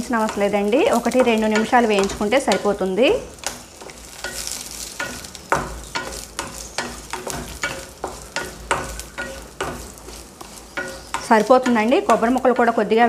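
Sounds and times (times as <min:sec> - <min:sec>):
light frying sizzle: 0:00.0 - 0:13.0
spatula hitting ringing pan: 0:03.4 - 0:12.7
spatula scraping a steel pan: 0:03.4 - 0:12.7.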